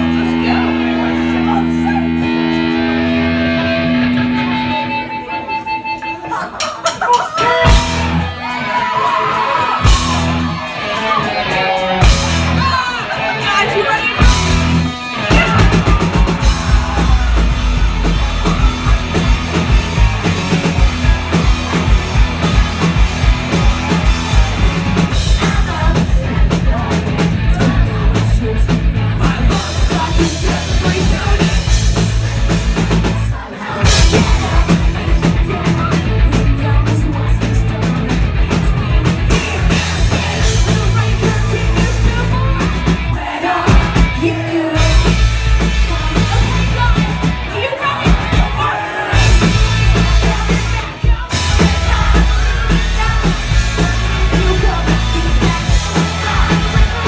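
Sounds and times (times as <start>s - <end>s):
electric guitar: 0.0s - 57.0s
drum kit: 6.4s - 57.0s
woman singing: 25.2s - 31.7s, 33.2s - 38.7s, 39.5s - 57.0s.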